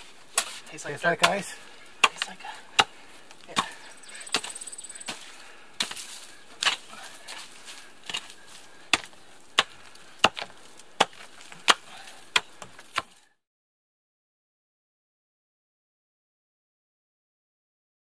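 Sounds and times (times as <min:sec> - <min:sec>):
digging tool striking frozen ground: 0:00.0 - 0:13.2.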